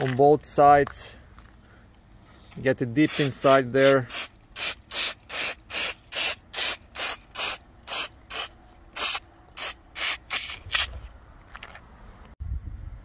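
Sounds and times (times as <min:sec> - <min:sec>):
aerosol spray hissing bursts: 0:03.1 - 0:11.0.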